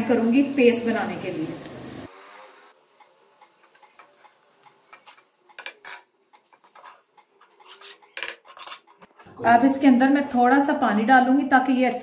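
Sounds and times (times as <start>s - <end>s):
metal spoon scraping in pot: 3.6s - 9.2s.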